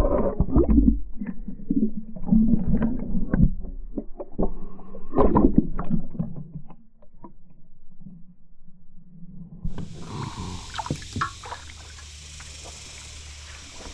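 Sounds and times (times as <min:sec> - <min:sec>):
underwater sloshing and bubbling: 0:00.0 - 0:08.9, 0:09.6 - 0:13.9
steady low hum: 0:08.8 - 0:13.9.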